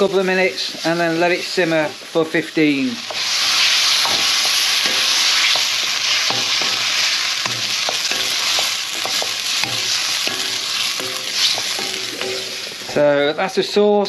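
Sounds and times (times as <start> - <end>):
chicken sizzling in a wok: 0.0 - 14.0
spatula scraping and knocking pan: 3.0 - 13.0.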